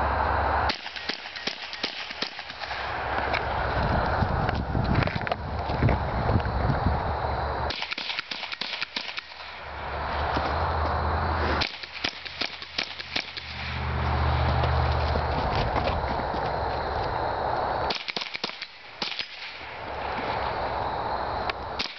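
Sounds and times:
rifle shots: 0.7s - 3.0s, 7.7s - 9.6s, 11.6s - 13.8s, 17.9s - 19.8s.

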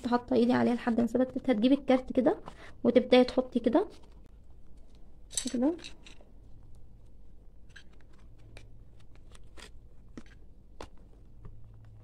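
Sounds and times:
cardboard card rustling: 6.7s - 12.0s.

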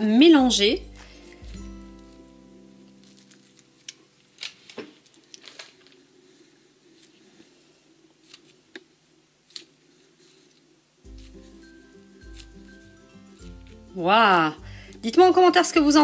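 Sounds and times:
held musical tone: 0.0s - 3.6s, 11.1s - 16.0s.

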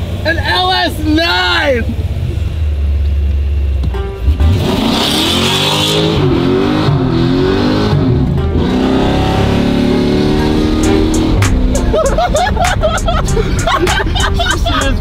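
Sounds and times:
engine revving hard: 4.3s - 11.7s.

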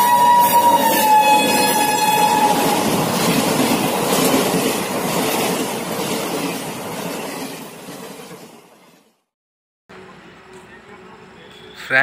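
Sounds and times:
train horn: 0.0s - 2.9s
train coaches rushing past: 0.0s - 9.3s.

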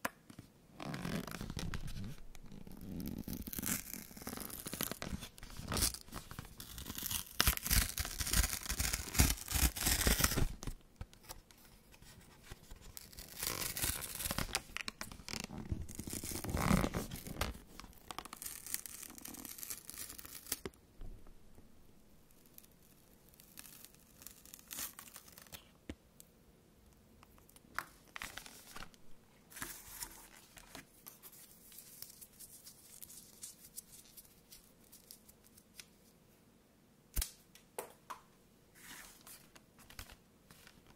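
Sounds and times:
paper tearing: 3.2s - 10.6s, 13.0s - 14.6s.

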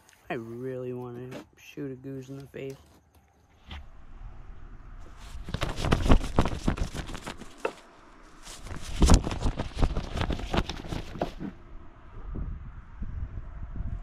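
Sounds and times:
flag fabric flapping: 5.0s - 11.6s.

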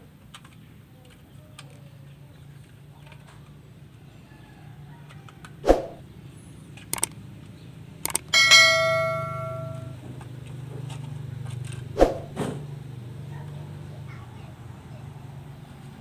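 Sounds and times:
bright metallic ring: 8.4s - 10.0s
low steady hum: 8.4s - 10.1s.

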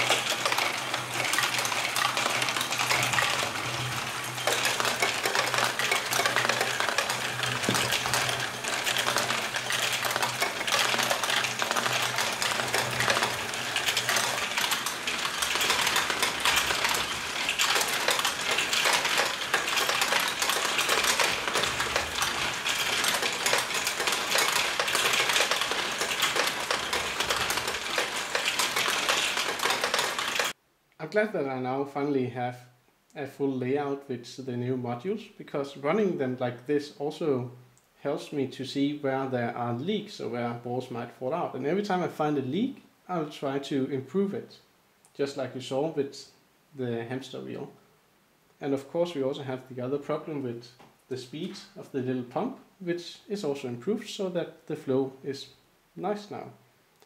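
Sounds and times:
plastic balls clattering through tracks: 0.0s - 30.6s.

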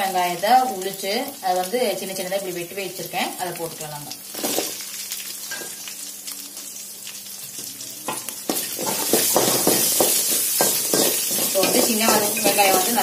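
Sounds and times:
shallots sizzling in hot oil: 0.0s - 13.0s.

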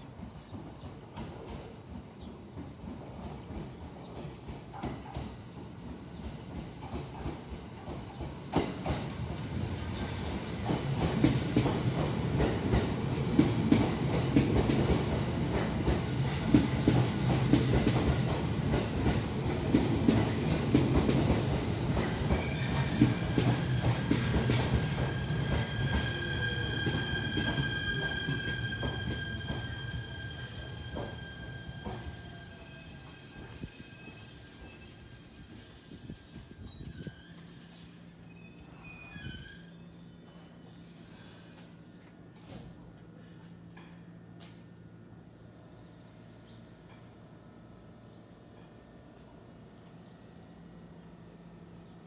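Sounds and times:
train rumbling past: 0.0s - 52.0s
high wheel squeal: 22.3s - 40.6s.

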